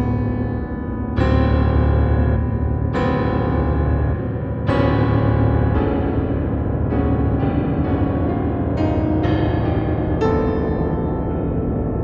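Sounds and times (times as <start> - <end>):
slow keyboard chords: 0.0 - 12.0.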